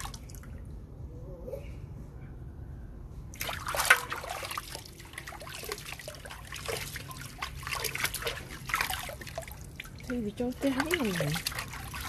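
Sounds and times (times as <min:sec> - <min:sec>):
water trickling and splashing: 0:00.0 - 0:00.8, 0:03.3 - 0:12.0.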